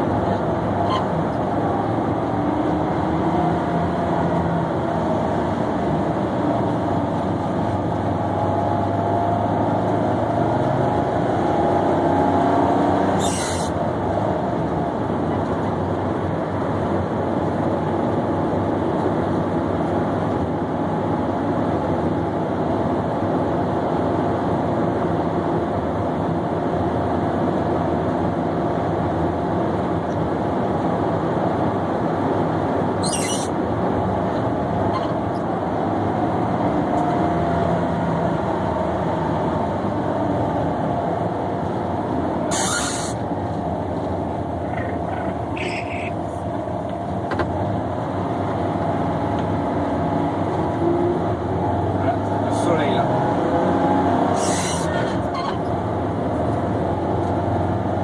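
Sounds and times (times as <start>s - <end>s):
road noise: 0.0s - 58.0s
car engine running: 31.1s - 35.7s, 41.1s - 53.0s.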